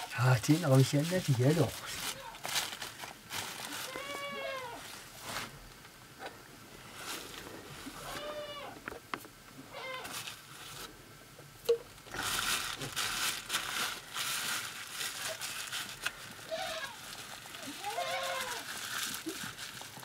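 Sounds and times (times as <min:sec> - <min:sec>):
plastic bag crinkling: 0:00.0 - 0:05.6, 0:12.1 - 0:20.0
goats bleating: 0:03.8 - 0:04.8, 0:17.6 - 0:18.7.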